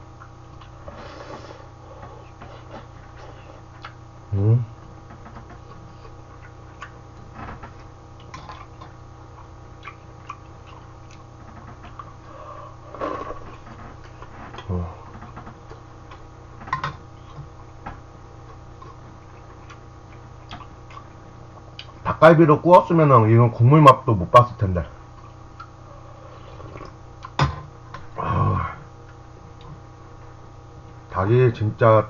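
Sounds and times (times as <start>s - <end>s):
steady low hum: 0.0s - 32.0s
chewing and mouth sounds: 2.0s - 4.0s, 7.8s - 12.2s, 18.4s - 22.0s.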